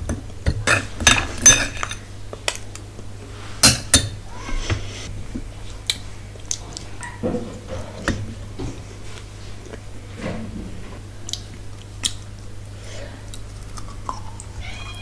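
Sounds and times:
steady low hum: 0.0 - 15.0
sharp mouth clicks: 11.2 - 12.2
wet chewing: 11.2 - 12.6, 13.2 - 14.6.

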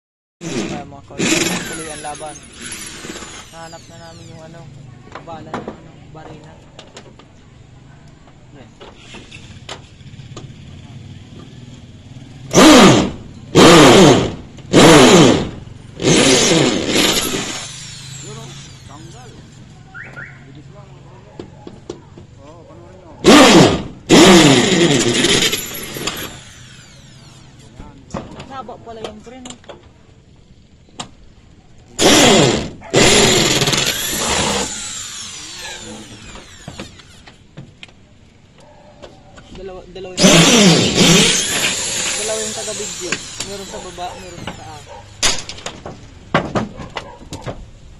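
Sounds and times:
electric drill bursts: 0.4 - 4.7, 12.5 - 19.6, 23.2 - 27.8, 32.0 - 37.4, 40.2 - 45.5
power tool motor whining: 0.4 - 5.3, 12.5 - 19.8, 23.2 - 27.9, 32.0 - 37.5, 40.2 - 45.8.

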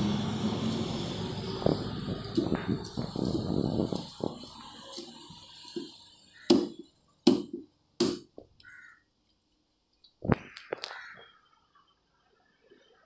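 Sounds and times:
knife chopping on wooden block: 6.4 - 8.3.

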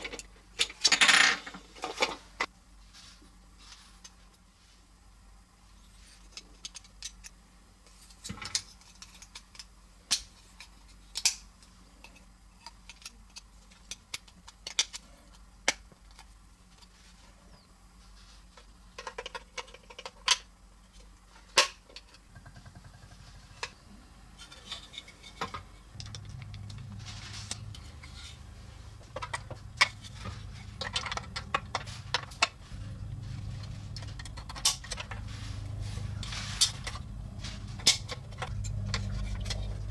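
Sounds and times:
low steady hum: 0.0 - 39.9
plastic parts clicking and tapping: 6.2 - 7.4, 8.1 - 16.9, 18.6 - 23.0, 24.4 - 27.8, 29.0 - 32.6, 33.6 - 35.3.

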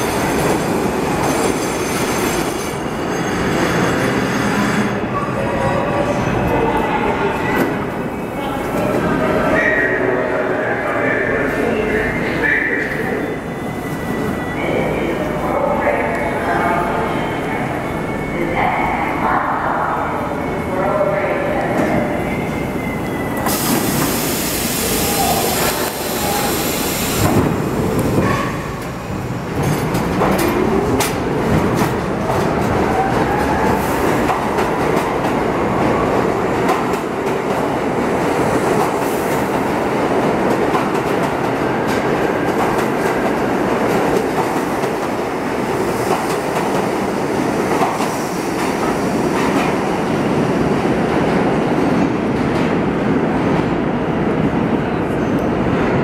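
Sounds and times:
train cars rumbling: 0.0 - 56.0
air brake hiss: 23.5 - 27.2.

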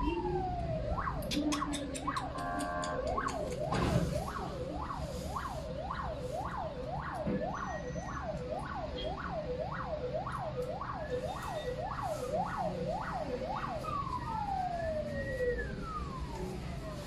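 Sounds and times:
second siren wailing: 0.0 - 17.0
siren yelping and wailing: 0.0 - 17.0.

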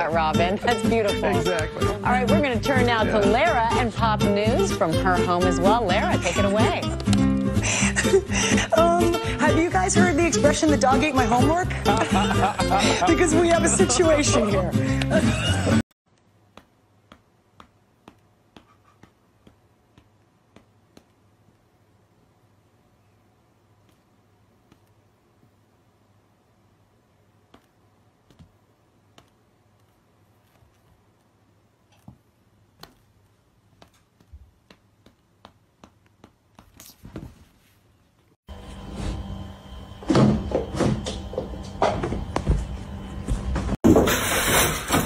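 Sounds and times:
cats sparring taps and clicks: 16.5 - 21.2, 33.7 - 36.9.

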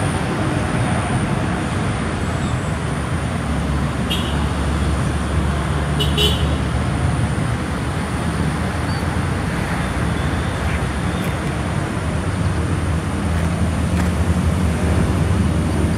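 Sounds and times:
low rumble of road traffic: 0.0 - 15.9.

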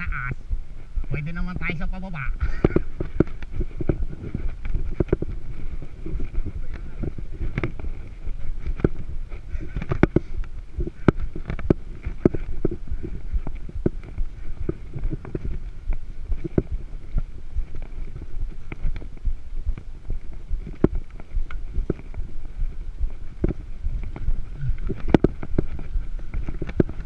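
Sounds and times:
road and wind rumble on microphone: 0.0 - 27.0
bike clicks and rattles: 2.4 - 16.8, 17.7 - 27.0.

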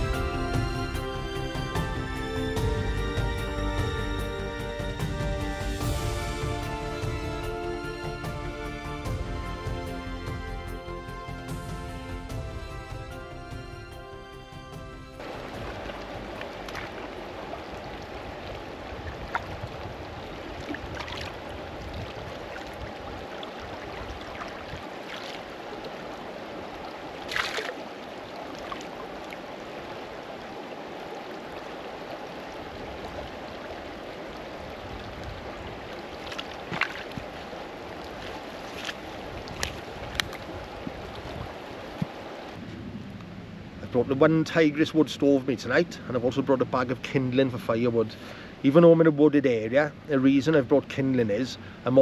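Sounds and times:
shallow stream running: 0.0 - 52.0
water bag knocks and splashes: 36.3 - 37.3.

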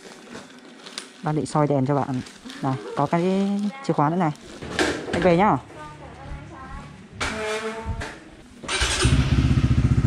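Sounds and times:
motorbike engine starting and idling: 8.6 - 10.0.

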